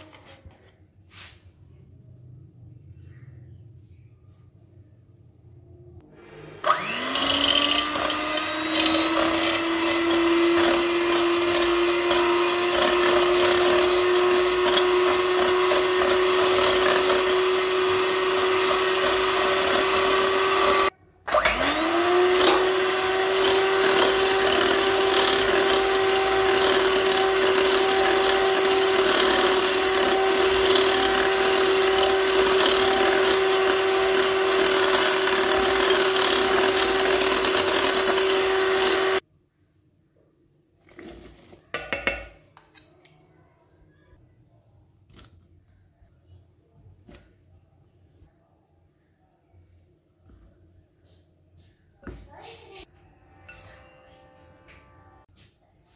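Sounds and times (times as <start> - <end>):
electric hand mixer whirring: 6.1 - 39.2.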